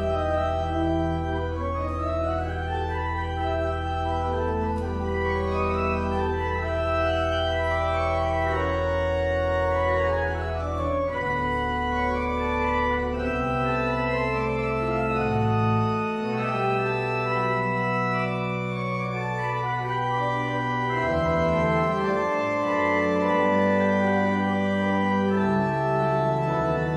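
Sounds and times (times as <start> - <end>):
church organ playing chords: 0.0 - 26.9.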